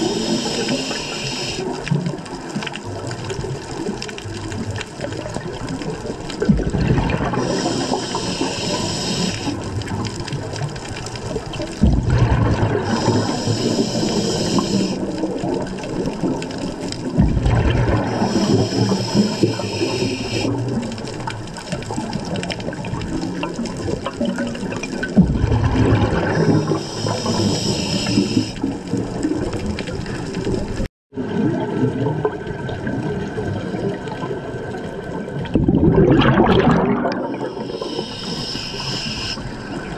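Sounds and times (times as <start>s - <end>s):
scuba regulator breathing hiss: 0.0s - 1.9s, 7.4s - 9.7s, 12.8s - 15.2s, 18.1s - 20.6s, 26.3s - 28.7s, 37.3s - 39.7s
exhaust bubbles rushing: 4.5s - 7.9s, 11.2s - 13.8s, 15.0s - 19.3s, 21.8s - 27.5s, 35.4s - 37.8s.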